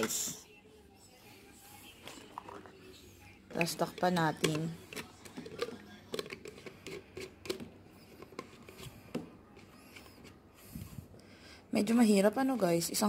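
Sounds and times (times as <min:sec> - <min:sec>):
plastic lid clicking and tapping: 0:03.5 - 0:09.3.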